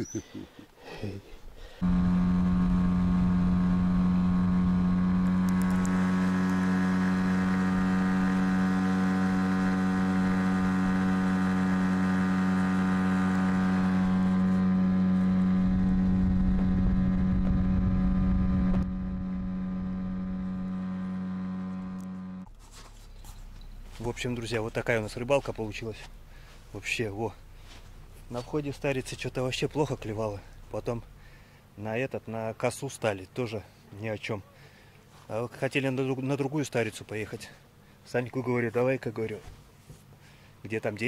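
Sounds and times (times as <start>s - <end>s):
boat motor running: 1.8s - 31.3s.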